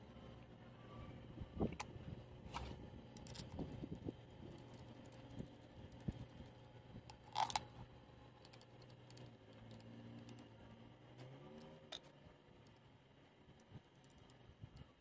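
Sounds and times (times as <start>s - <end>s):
small metal clicks and taps: 13.5s - 14.9s.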